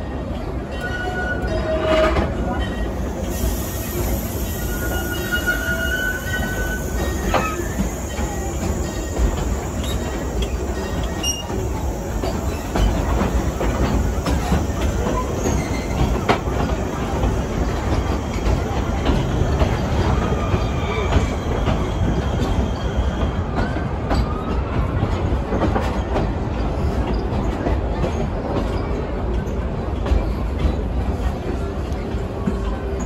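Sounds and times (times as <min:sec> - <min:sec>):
train rumbling on track: 0:00.0 - 0:33.0
faint wheel squeal: 0:00.8 - 0:11.6.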